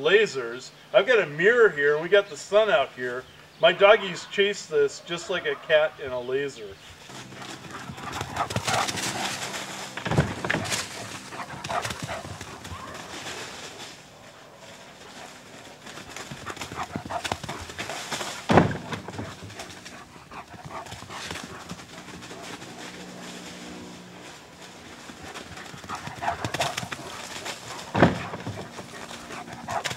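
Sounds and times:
dog paws rustling dry leaves: 0:07.0 - 0:29.9
loud sharp thump: 0:18.5 - 0:19.1, 0:28.0 - 0:28.6.

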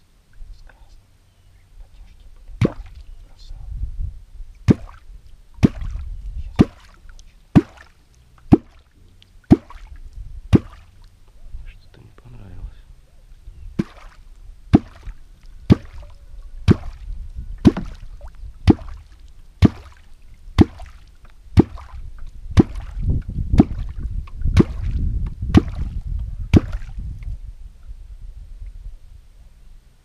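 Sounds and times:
water gurgling: 0:02.5 - 0:03.0, 0:04.6 - 0:11.4, 0:13.8 - 0:27.2
catfish call popping in water: 0:02.6 - 0:03.0, 0:06.6 - 0:07.9, 0:08.5 - 0:11.0, 0:13.8 - 0:21.0.

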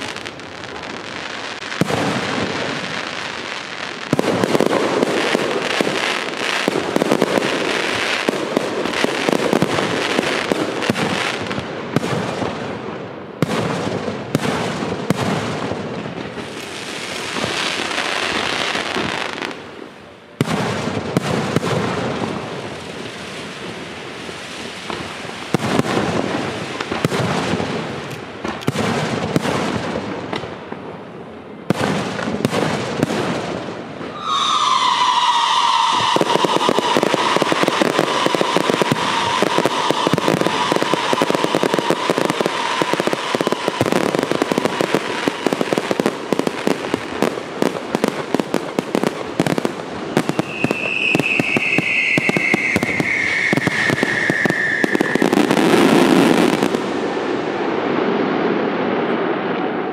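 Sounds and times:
firework bangs: 0:00.0 - 0:59.9
fireworks crackling: 0:00.0 - 0:59.9
falling firework whistle: 0:34.0 - 0:46.1, 0:49.0 - 0:57.5.

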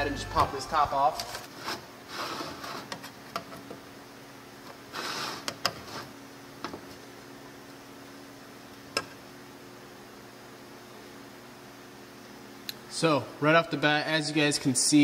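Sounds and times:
steady low hum: 0:00.0 - 0:05.0.

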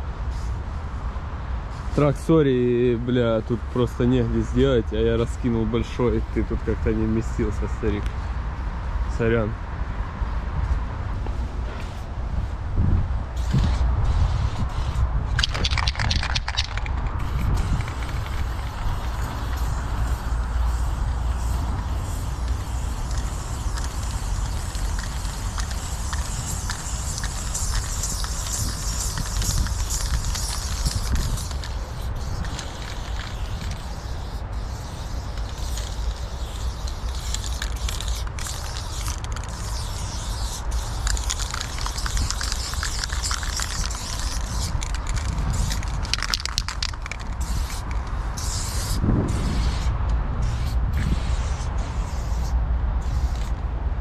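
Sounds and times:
steady low rumble: 0:00.0 - 0:54.0
spray paint can hissing: 0:13.3 - 0:53.6.

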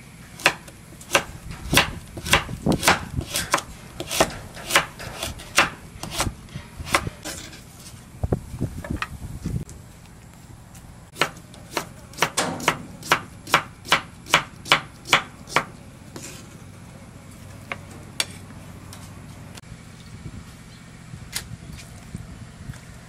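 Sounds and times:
knife chopping on wooden board: 0:00.4 - 0:06.3, 0:11.2 - 0:15.7.

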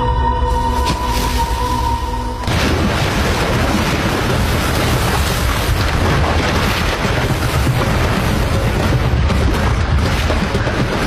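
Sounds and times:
water churning and splashing: 0:00.6 - 0:11.0.

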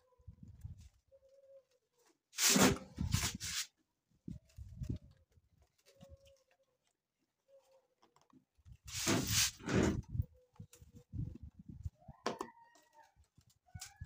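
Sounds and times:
plastic scraping against metal: 0:02.4 - 0:03.7, 0:08.9 - 0:10.2.

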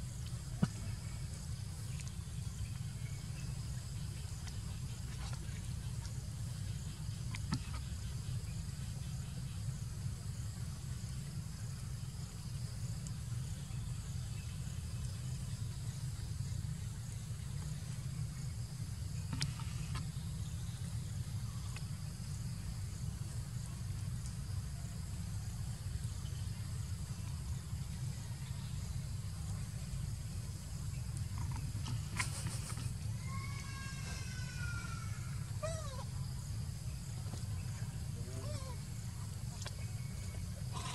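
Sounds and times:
insects chirring: 0:00.0 - 0:40.9.

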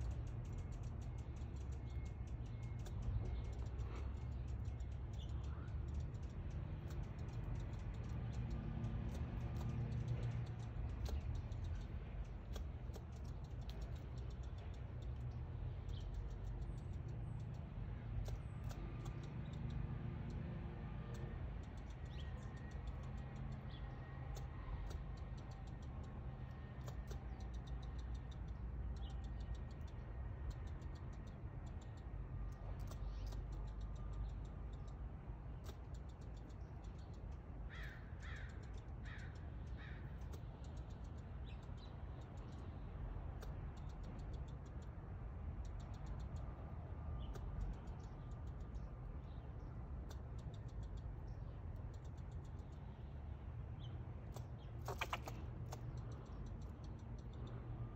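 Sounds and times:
squirrel chucking alarm calls: 0:21.0 - 0:52.9, 0:53.7 - 0:57.6
squirrel drawn-out calls: 0:37.6 - 0:40.4, 0:54.7 - 0:55.9.

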